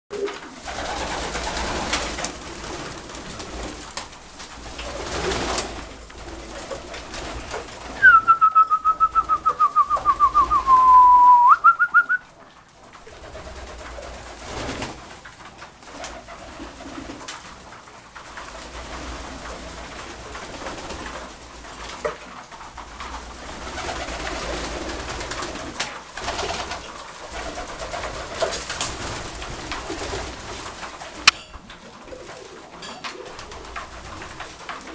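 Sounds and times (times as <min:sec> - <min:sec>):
pigeons cooing: 0:00.1 - 0:12.3
pigeon feet shuffling: 0:00.1 - 0:34.9
pigeon wings flapping: 0:00.1 - 0:34.9.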